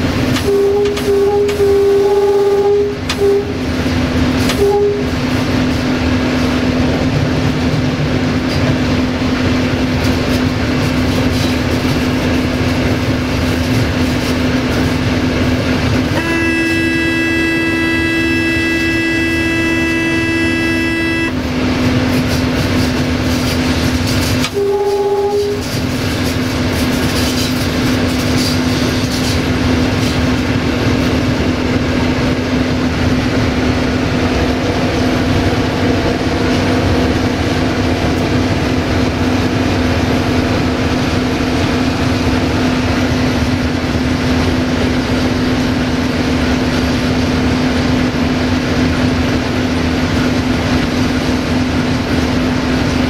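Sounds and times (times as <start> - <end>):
diesel engine drone: 0.0 - 53.0
wheel and rail rumble: 0.0 - 53.0
locomotive horn: 0.3 - 3.8, 4.4 - 5.4, 16.1 - 21.7, 24.4 - 25.9.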